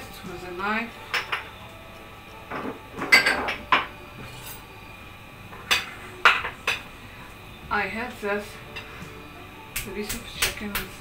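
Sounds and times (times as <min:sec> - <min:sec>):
glassware and utensils clinking: 0:01.1 - 0:01.6, 0:02.5 - 0:04.6.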